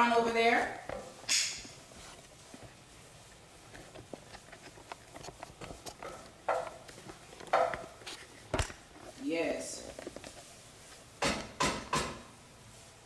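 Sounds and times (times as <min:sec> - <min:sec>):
wooden spoon scraping a pot: 0:00.1 - 0:11.1.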